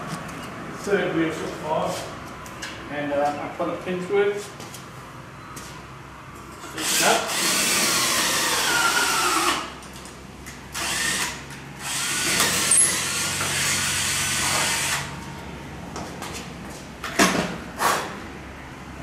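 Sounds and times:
cordless drill boring metal: 0:06.7 - 0:09.7, 0:10.7 - 0:15.1.

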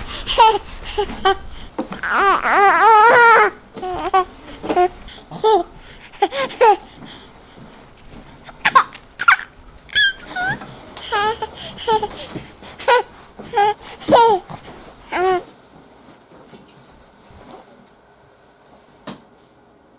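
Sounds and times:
baby-like voice laughing and babbling: 0:00.0 - 0:07.0, 0:08.5 - 0:15.5.

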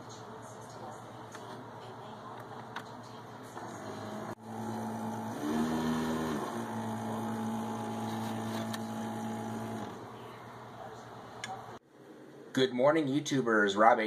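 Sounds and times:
coffee brewer pump hum: 0:03.6 - 0:11.8.

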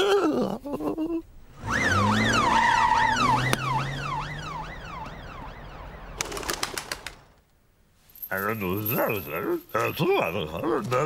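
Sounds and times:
cartoon police siren wailing: 0:01.6 - 0:06.2.

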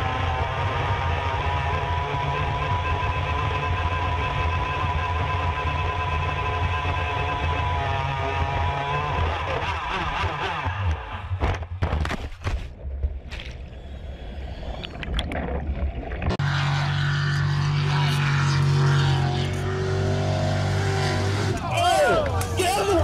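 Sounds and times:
powerboat engine: 0:00.0 - 0:11.2, 0:15.9 - 0:23.0
distant racing boat engine drone: 0:00.0 - 0:11.6, 0:16.3 - 0:23.0
muffled churning water: 0:12.5 - 0:17.6.

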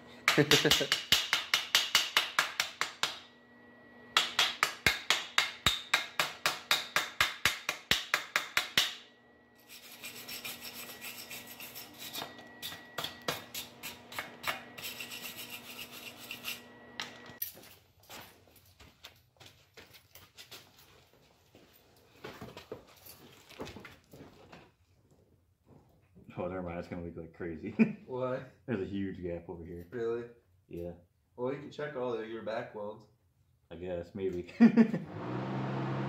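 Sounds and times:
hand scraping metal exhaust pipe: 0:09.6 - 0:16.7.

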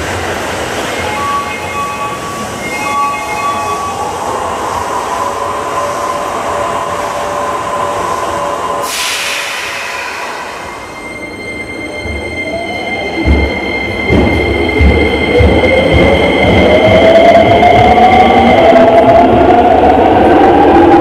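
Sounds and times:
train running noise: 0:00.0 - 0:21.0
sudden hiss: 0:08.8 - 0:11.0.

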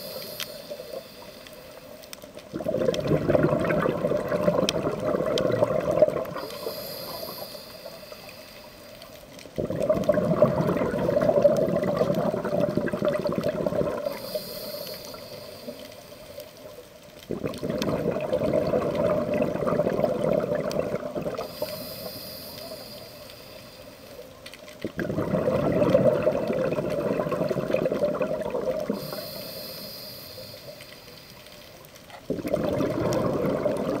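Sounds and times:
regulator inhale hiss: 0:00.0 - 0:02.4, 0:06.2 - 0:09.4, 0:14.0 - 0:16.9, 0:21.3 - 0:24.5, 0:28.7 - 0:31.9
exhaled bubbles rushing: 0:02.5 - 0:06.5, 0:09.5 - 0:14.3, 0:17.2 - 0:21.7, 0:24.8 - 0:29.2, 0:32.2 - 0:34.0.

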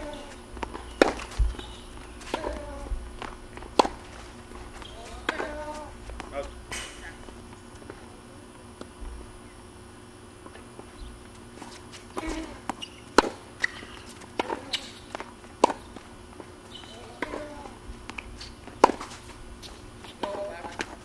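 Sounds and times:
sneakers scuffing on court: 0:00.0 - 0:08.0, 0:10.5 - 0:21.0
tennis ball pops: 0:00.2 - 0:01.6, 0:02.3 - 0:04.0, 0:12.2 - 0:13.4.

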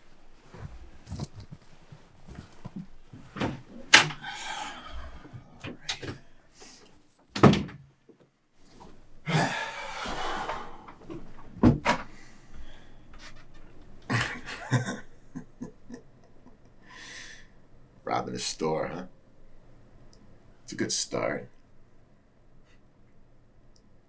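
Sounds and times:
door being shut: 0:07.4 - 0:07.8.

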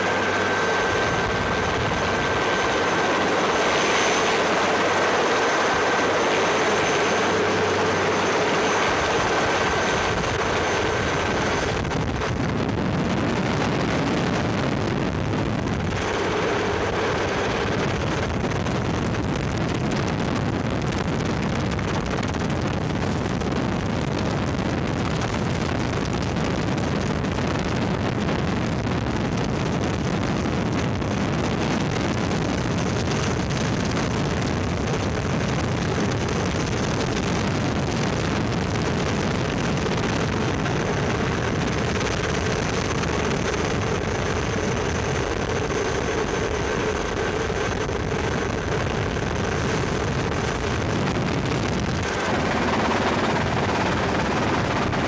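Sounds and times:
faint high whine: 0:00.0 - 0:23.5
helicopter rotor and turbine rush: 0:00.0 - 0:55.0.

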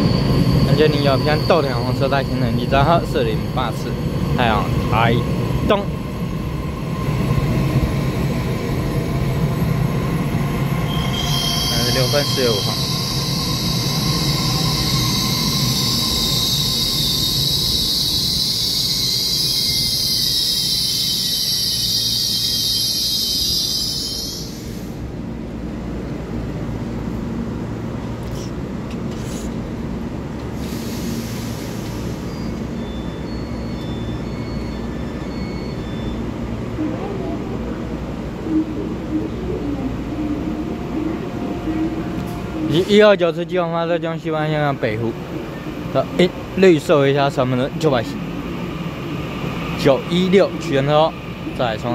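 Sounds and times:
train brakes squealing: 0:00.0 - 0:05.8, 0:08.5 - 0:25.0, 0:30.6 - 0:36.6
standing train humming: 0:00.0 - 0:43.4
short air hisses: 0:30.6 - 0:32.4.

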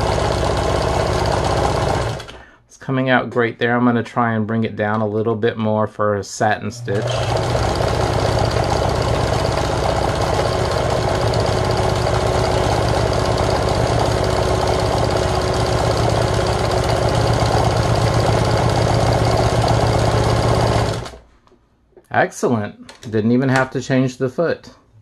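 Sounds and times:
sewing machine running: 0:00.0 - 0:02.4, 0:06.8 - 0:21.2.

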